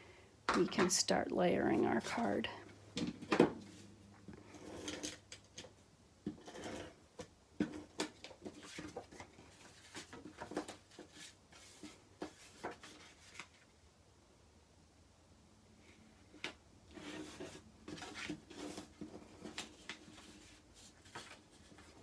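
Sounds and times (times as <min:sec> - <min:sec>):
paper rustling: 0:07.9 - 0:13.7, 0:16.9 - 0:22.0.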